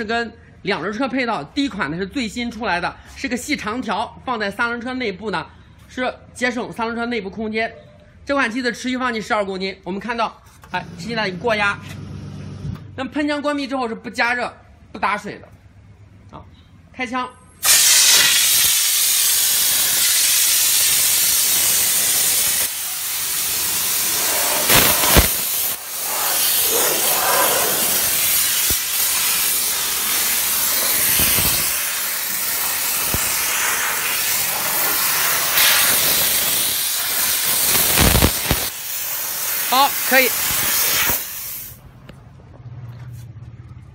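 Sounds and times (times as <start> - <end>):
steam jet hissing: 17.6 - 41.8.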